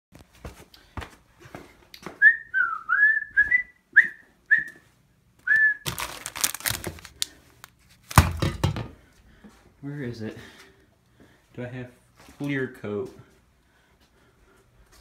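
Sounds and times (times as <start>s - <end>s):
person whistling short notes: 2.2s - 5.9s
rustling and knocking of objects: 5.9s - 9.6s.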